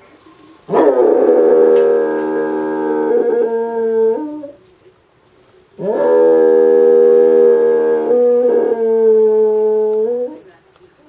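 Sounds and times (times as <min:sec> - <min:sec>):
dog howling: 0:00.7 - 0:04.6, 0:05.8 - 0:10.4.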